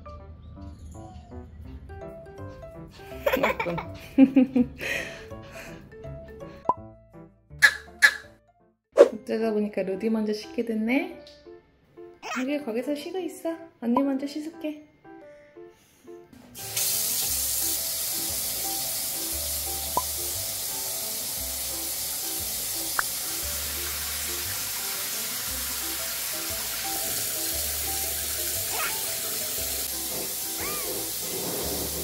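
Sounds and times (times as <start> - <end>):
background music: 0.0 - 32.0
tap water running into sink: 16.6 - 32.0.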